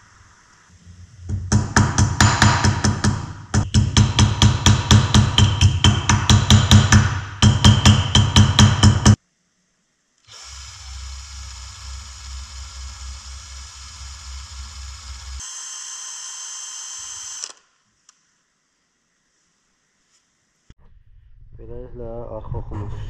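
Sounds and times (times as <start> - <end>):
cordless drill whining: 10.3 - 17.7.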